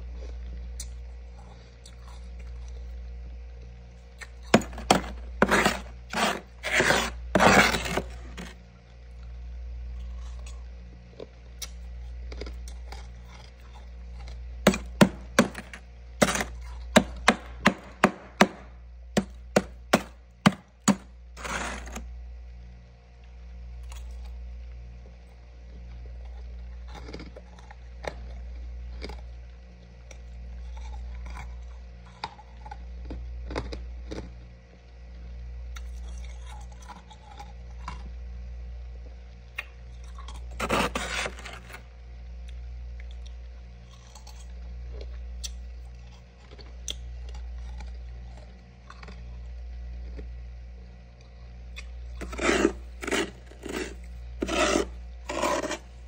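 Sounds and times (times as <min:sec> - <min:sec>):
steady low hum: 0:00.0 - 0:56.0
metal spoon scraping frost: 0:04.5 - 0:08.6, 0:14.7 - 0:18.6, 0:19.2 - 0:22.0, 0:40.5 - 0:41.8, 0:52.2 - 0:56.0.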